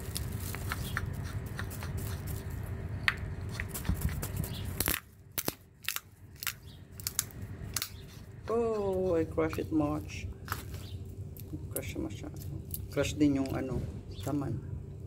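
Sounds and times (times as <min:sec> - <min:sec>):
walnut shell cracking: 0:03.0 - 0:09.7, 0:10.4 - 0:12.9.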